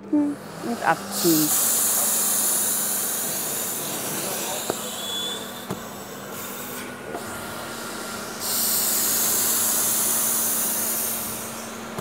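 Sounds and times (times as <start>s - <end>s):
cleaner motor hum: 0.0s - 12.0s
loud steam hiss: 0.4s - 12.0s.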